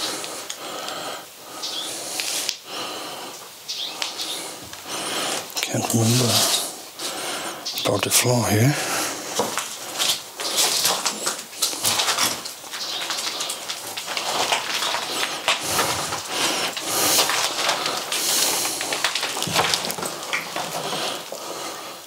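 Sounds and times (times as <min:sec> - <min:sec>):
footsteps crunching on debris: 0:03.9 - 0:07.2, 0:07.9 - 0:21.7.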